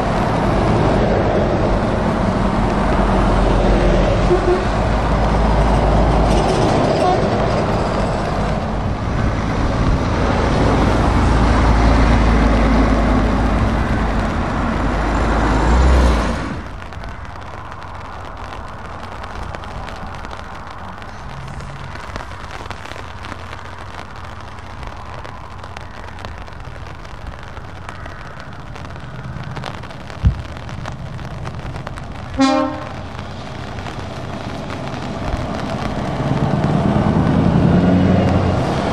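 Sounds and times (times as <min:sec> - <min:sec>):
heavy trucks passing on wet road: 0:00.0 - 0:38.9
short horn toot: 0:04.2 - 0:04.8, 0:32.4 - 0:33.0.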